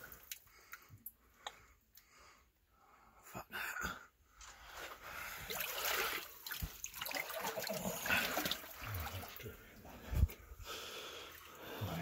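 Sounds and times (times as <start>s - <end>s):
shallow water splashing: 5.2s - 9.7s.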